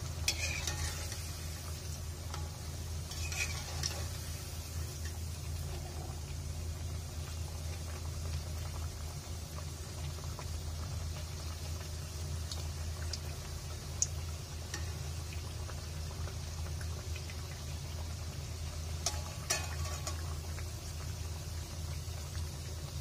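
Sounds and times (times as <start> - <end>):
food deep-frying in oil: 0.0 - 23.0
metal spoon clinking on pan: 0.3 - 1.2, 2.3 - 4.1, 19.0 - 20.3.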